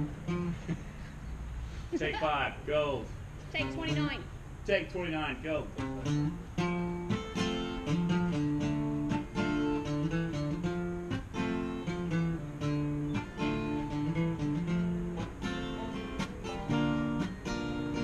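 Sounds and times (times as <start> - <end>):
strummed and plucked strings: 0.0 - 1.2, 5.6 - 18.0.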